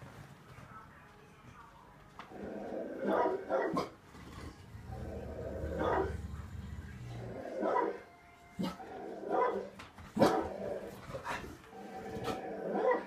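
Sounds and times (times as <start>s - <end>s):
dog barking: 3.0s - 4.0s, 5.8s - 6.2s, 7.5s - 8.0s, 8.6s - 10.6s, 12.7s - 13.0s
low dog growl: 4.1s - 7.6s.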